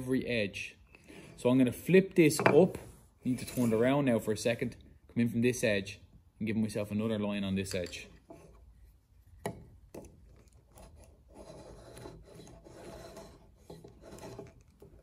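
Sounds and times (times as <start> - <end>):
wood scraping on wood: 2.4 - 3.9, 10.0 - 15.0.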